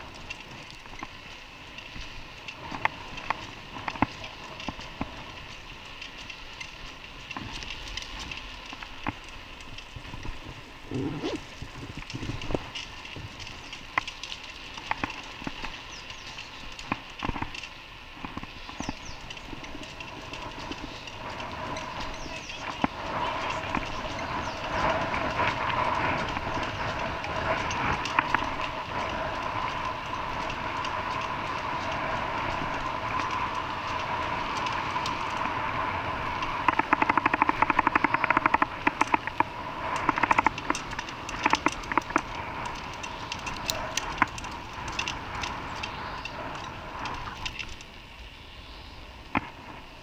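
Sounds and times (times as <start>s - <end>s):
vehicle interior running noise: 18.2s - 47.7s.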